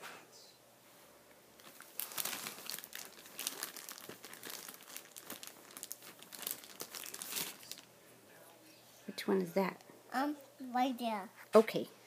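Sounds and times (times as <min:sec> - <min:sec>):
plastic bag crinkling: 0:01.6 - 0:07.9.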